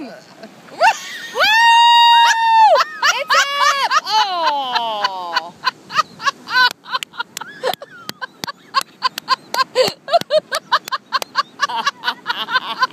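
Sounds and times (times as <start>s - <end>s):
people laughing: 2.6s - 12.9s.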